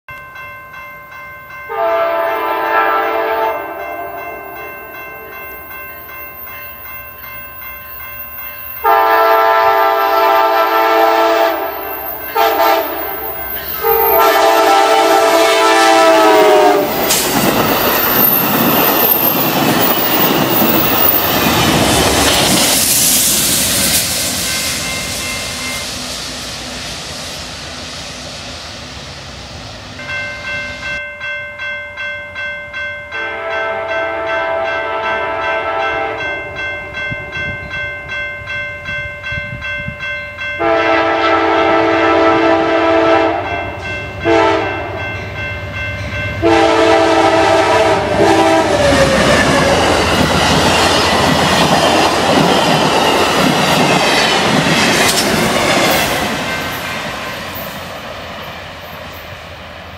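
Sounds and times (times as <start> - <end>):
train passing with wheel noise: 0.1 - 59.9
train air horn blasts: 1.7 - 4.5, 8.8 - 17.3, 33.2 - 36.3, 40.6 - 45.0, 46.4 - 49.9.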